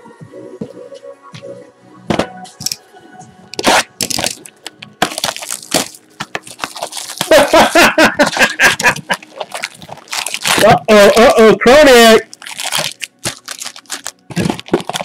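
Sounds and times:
cardboard box cracking and tearing: 3.6s - 11.4s, 12.2s - 15.0s
cardboard rustling: 3.6s - 11.4s, 12.2s - 15.0s.

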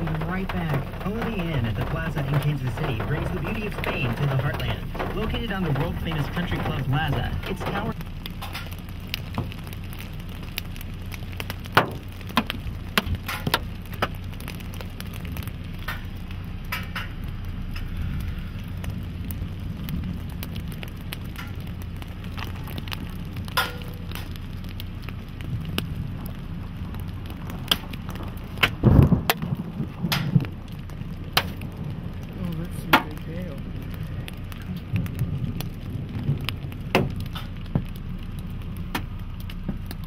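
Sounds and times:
heavy low thump: 0.0s - 8.0s, 28.2s - 30.5s
raindrops ticking on vehicle: 0.0s - 40.0s.

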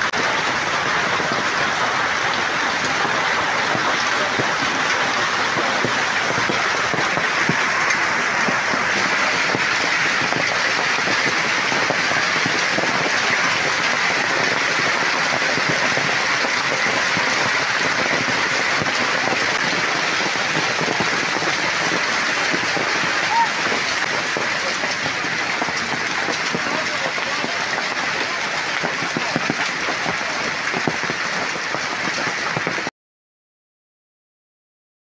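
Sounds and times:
hail falling on pavement: 0.0s - 32.9s.

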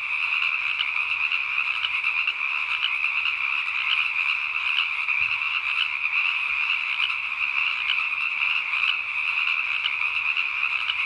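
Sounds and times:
chorus of frogs calling: 0.0s - 11.0s.

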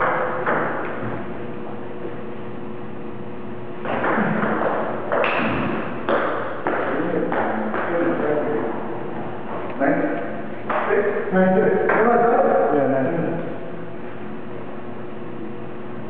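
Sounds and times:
ping pong ball clicking off paddles: 3.8s - 8.0s.

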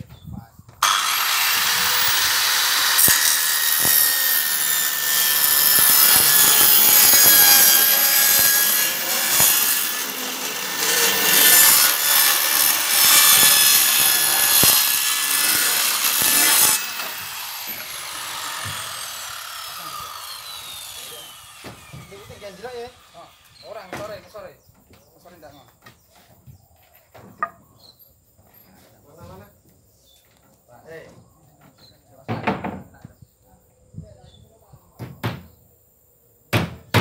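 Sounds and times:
saw motor winding down: 0.8s - 23.9s
circular saw cutting plywood: 0.8s - 24.4s.

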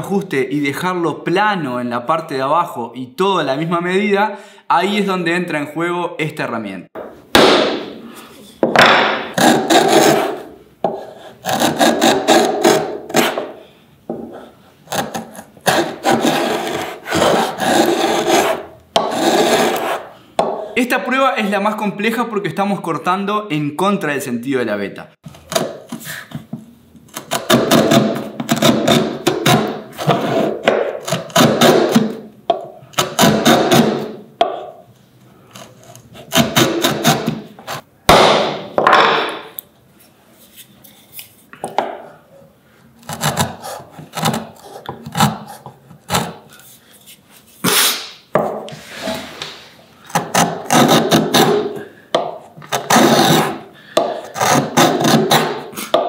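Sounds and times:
router plane scraping wood: 9.4s - 13.5s, 14.3s - 20.1s, 27.2s - 32.0s, 48.7s - 51.7s, 52.7s - 53.6s, 54.2s - 55.6s.

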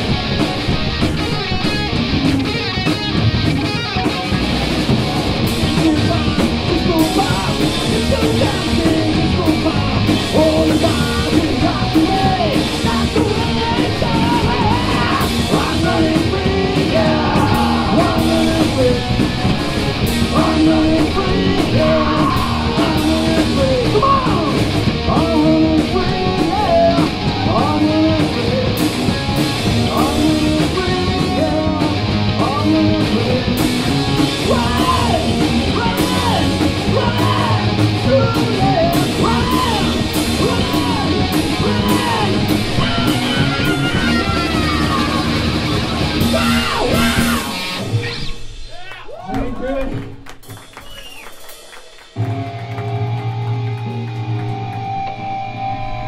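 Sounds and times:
bass guitar: 0.0s - 56.0s
distorted electric guitars: 0.0s - 56.0s
drum kit: 0.0s - 56.0s
man singing lead vocals: 5.4s - 48.8s.

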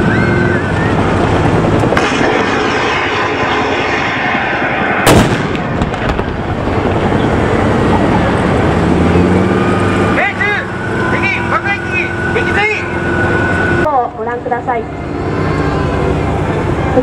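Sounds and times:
vehicle engines rumbling: 0.0s - 17.0s
gunfire blast: 2.0s - 6.8s.

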